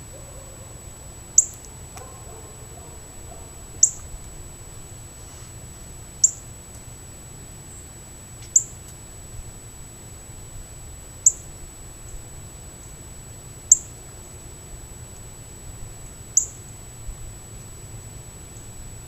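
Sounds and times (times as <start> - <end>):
faint high-pitched whine: 0.0 - 19.0
bird chirping: 1.4 - 4.1, 6.2 - 6.4, 8.5 - 8.8, 11.2 - 11.5, 13.7 - 14.0, 16.4 - 16.7.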